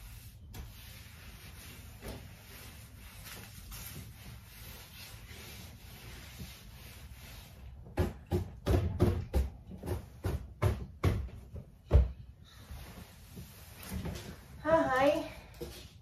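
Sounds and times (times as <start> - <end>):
cloth wiping wooden shelf: 0.0 - 8.0
sharp knocks and thumps: 7.8 - 12.2.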